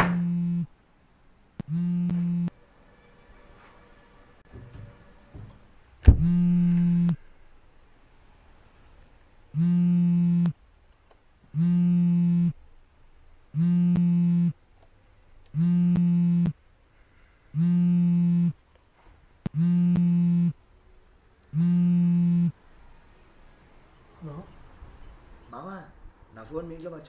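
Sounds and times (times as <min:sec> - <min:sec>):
phone alarm buzzy tone: 0:00.1 - 0:00.7, 0:01.6 - 0:02.5, 0:06.1 - 0:07.2, 0:09.6 - 0:10.6, 0:11.6 - 0:12.6, 0:13.6 - 0:14.6, 0:15.6 - 0:16.6, 0:17.6 - 0:18.6, 0:19.5 - 0:20.6, 0:21.6 - 0:22.6.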